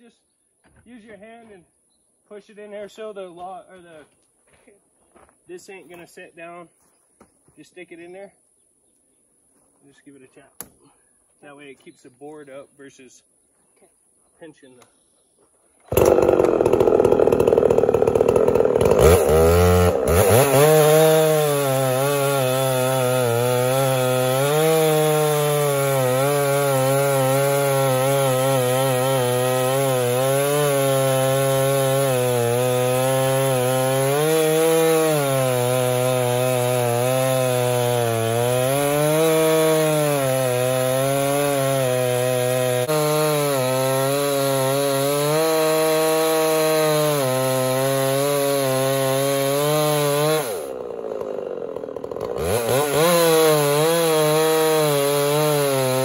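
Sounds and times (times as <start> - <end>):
chainsaw cutting log: 15.9 - 56.0.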